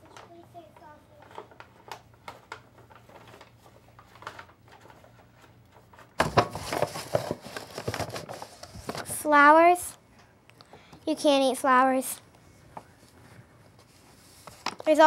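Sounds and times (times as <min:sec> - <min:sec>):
paper bag rustling: 0:02.9 - 0:09.2.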